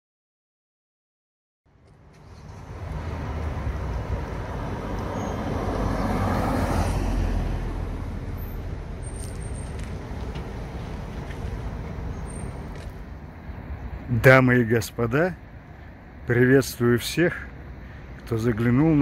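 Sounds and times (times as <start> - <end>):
traffic hum: 1.7 - 19.0
car passing by: 2.1 - 14.0.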